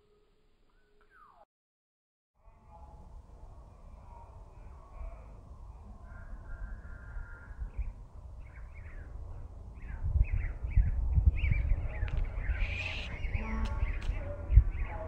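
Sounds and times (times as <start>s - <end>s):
small birds chirping: 5.7s - 15.0s.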